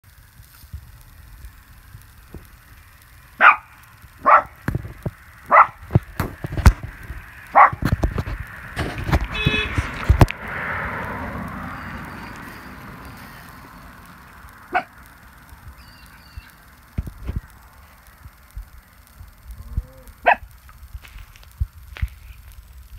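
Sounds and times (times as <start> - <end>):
soft rushing noise: 0.2 - 22.9
dog barking: 3.4 - 4.6, 5.5 - 5.8, 7.5 - 7.8, 14.7 - 14.9, 20.2 - 20.4.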